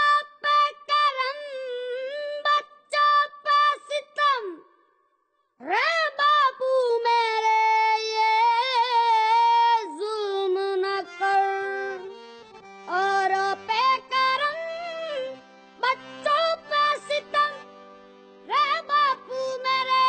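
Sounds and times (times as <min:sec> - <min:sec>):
person singing long high notes: 0:07.2 - 0:12.2.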